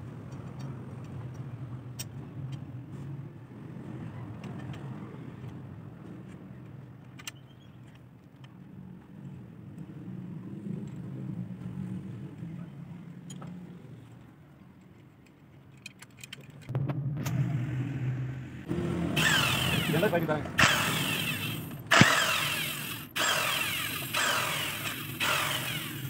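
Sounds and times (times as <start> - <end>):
low motor drone: 16.7 - 26.0.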